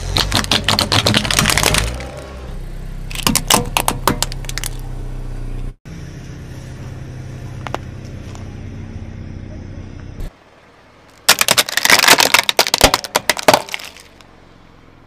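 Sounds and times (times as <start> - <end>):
tyre crushing brittle object: 0.0 - 2.2, 3.1 - 4.8, 11.2 - 14.2
car engine running low: 0.0 - 11.3, 13.2 - 15.0.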